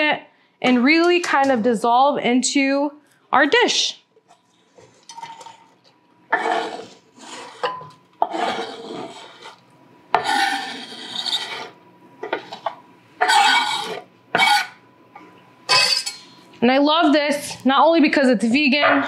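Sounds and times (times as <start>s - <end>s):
knife scraping wooden board: 8.2s - 9.6s, 10.2s - 12.6s.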